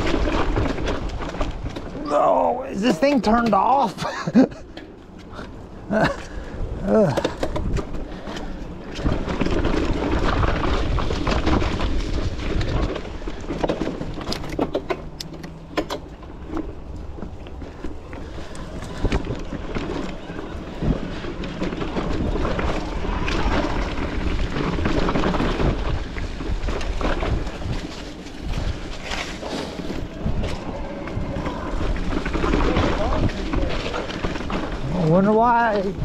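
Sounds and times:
bike rattling over bumps: 0.0 - 36.0
bike tyres rumbling on dirt: 0.0 - 36.0
wind on microphone: 18.0 - 35.1.

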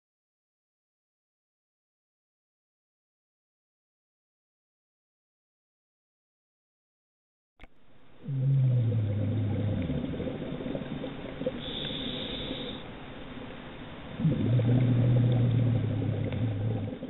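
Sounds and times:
exhaled bubbles rumbling underwater: 8.1 - 17.0
regulator inhalation hiss: 11.6 - 12.9.

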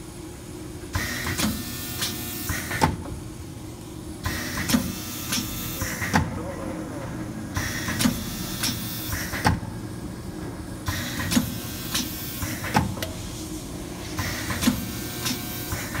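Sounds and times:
steady motor hum: 0.0 - 16.0
pneumatic hiss: 0.9 - 3.0, 4.2 - 6.3, 7.5 - 9.6, 10.8 - 16.0.

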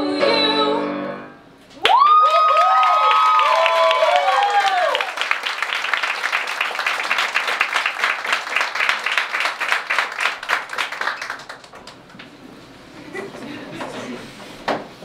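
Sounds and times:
audience applauding: 1.8 - 12.3.

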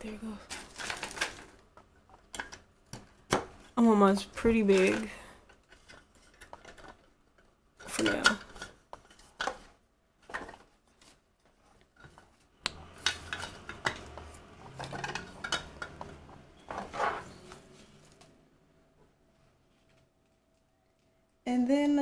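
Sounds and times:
plastic rubbing: 7.9 - 18.3.

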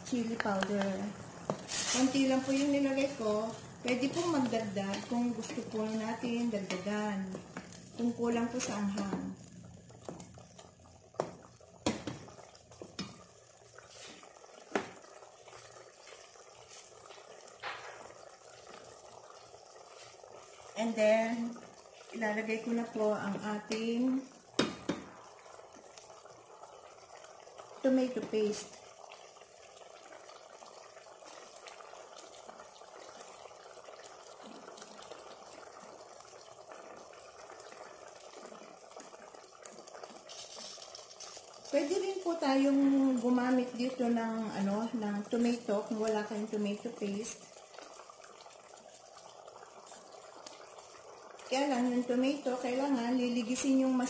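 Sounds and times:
broth bubbling in a pot: 0.0 - 54.0
wooden spoon knocking on pot: 11.2 - 13.2, 24.6 - 25.1.

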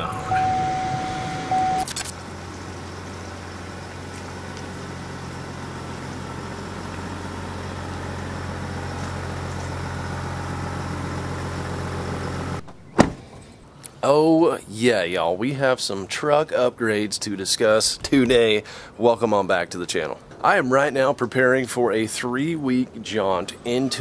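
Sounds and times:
diesel engine idling: 0.0 - 13.8
sharp click: 1.8 - 2.2.

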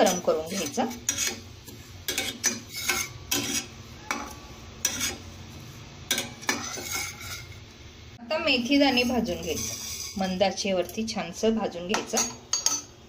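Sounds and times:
metal spatula scraping a pan: 0.0 - 7.7, 8.5 - 11.2.

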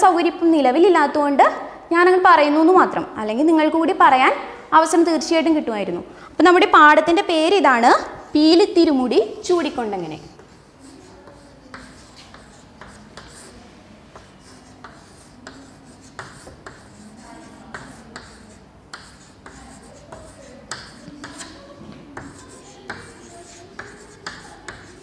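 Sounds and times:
chalk tapping and scratching: 9.7 - 25.0.

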